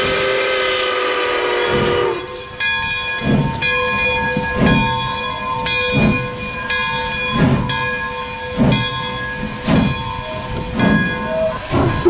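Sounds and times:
steam locomotive whistle: 0:00.0 - 0:02.6
steam exhaust chuffs: 0:00.0 - 0:12.0
locomotive bell ringing: 0:01.4 - 0:12.0.

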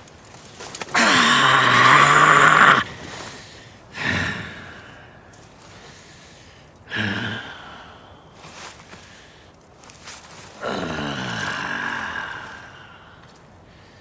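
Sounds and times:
man groaning in pain: 0:00.9 - 0:02.9, 0:10.6 - 0:12.7.

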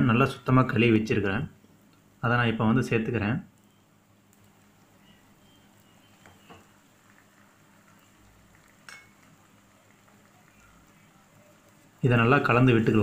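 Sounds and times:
chicken sizzling in oil: 0:04.5 - 0:13.0.

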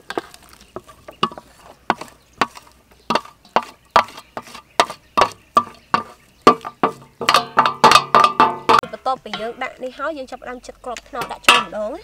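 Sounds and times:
wooden spoon tapping steel bowl: 0:04.8 - 0:09.7, 0:11.2 - 0:11.9.

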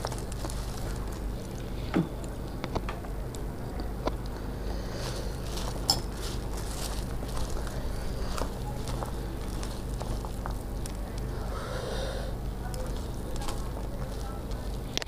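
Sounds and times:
food mixed by hand squishing: 0:00.0 - 0:02.6, 0:03.3 - 0:11.6, 0:12.3 - 0:15.0
steel spoon clinking: 0:05.9 - 0:06.2.

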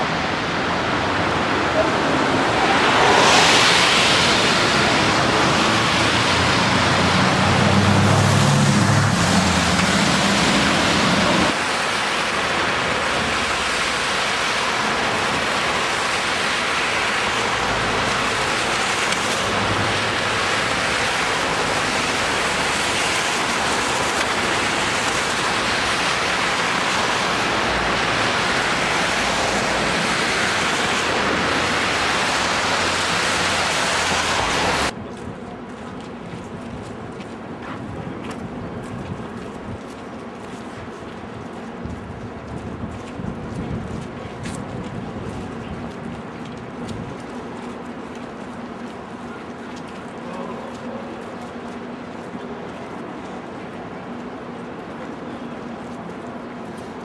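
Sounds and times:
tyres hissing on wet road: 0:00.0 - 0:35.0
passing car engine hum: 0:01.8 - 0:11.6.

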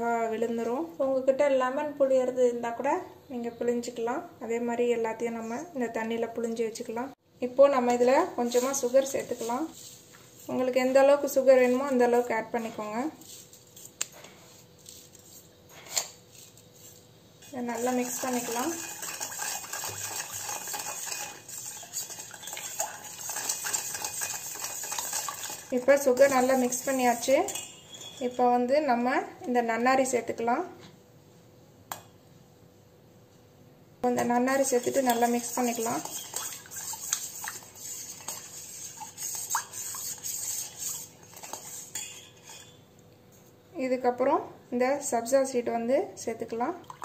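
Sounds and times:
spoon scraping metal bowl: 0:08.4 - 0:28.7, 0:34.6 - 0:42.9
spoon clinking against bowl: 0:27.1 - 0:28.4.

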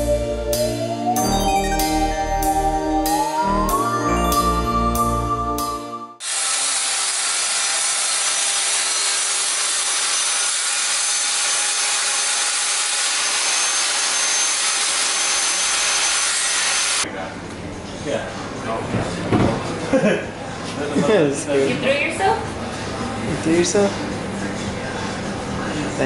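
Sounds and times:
music: 0:00.0 - 0:06.2
circular saw cutting wood: 0:06.2 - 0:17.0.

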